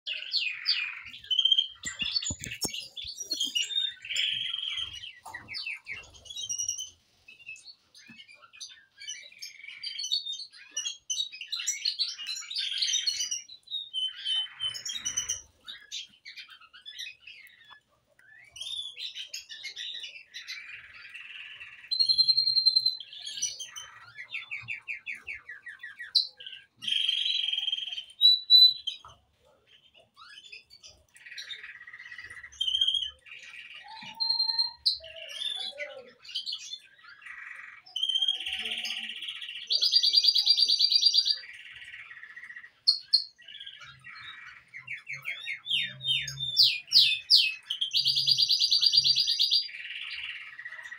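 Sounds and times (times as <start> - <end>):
small birds chirping: 0.0 - 50.9
bird whistles and trills: 0.1 - 29.2, 30.2 - 50.9.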